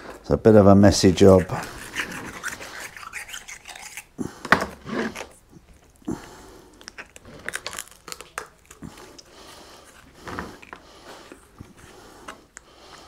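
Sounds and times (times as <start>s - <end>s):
knife scraping on chopping board: 1.2s - 5.4s.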